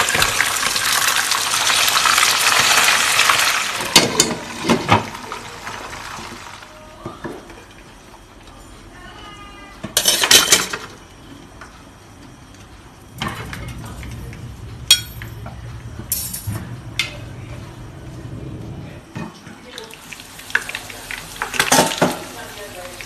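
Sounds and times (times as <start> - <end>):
steady low hum: 11.0 - 19.2.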